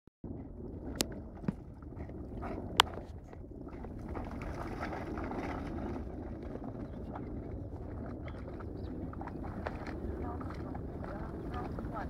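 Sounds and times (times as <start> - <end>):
wind rumbling on microphone: 0.2 - 12.0.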